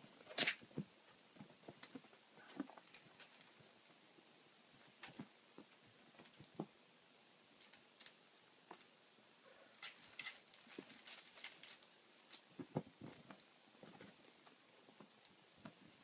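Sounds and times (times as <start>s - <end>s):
kittens' paws pattering: 9.7s - 15.8s
soft thumps: 12.6s - 14.2s.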